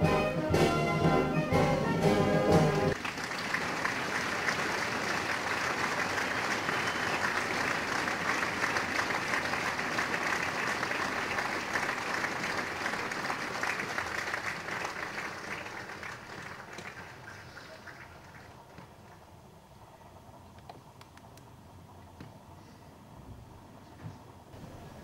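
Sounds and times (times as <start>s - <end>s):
crowd applauding: 0.7s - 19.3s.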